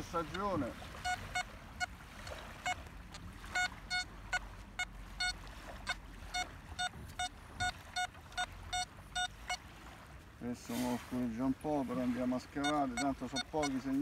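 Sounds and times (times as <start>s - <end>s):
metal detector beeps: 0.2s - 2.0s, 2.6s - 2.9s, 3.5s - 9.6s, 12.5s - 14.0s.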